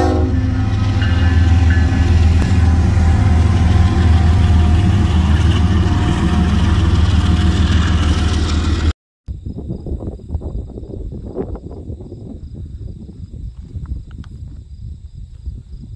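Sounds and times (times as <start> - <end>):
diesel locomotive engine rumbling: 0.0 - 9.5.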